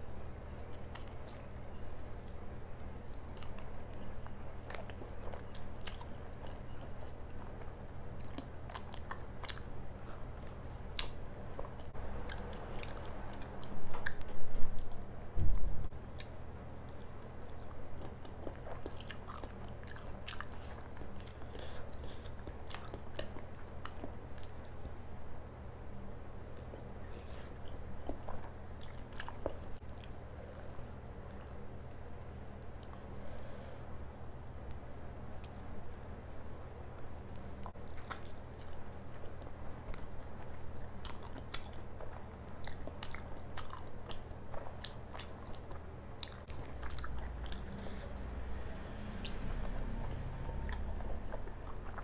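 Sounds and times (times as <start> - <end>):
close chewing with mouth clicks: 0.0 - 25.4, 26.4 - 33.8, 37.0 - 52.0.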